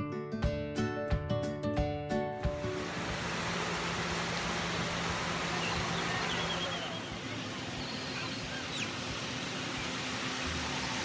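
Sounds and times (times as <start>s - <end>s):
low steady hum: 2.5s - 11.0s
steady rushing noise: 2.5s - 11.0s
faint high chirps: 5.6s - 9.0s.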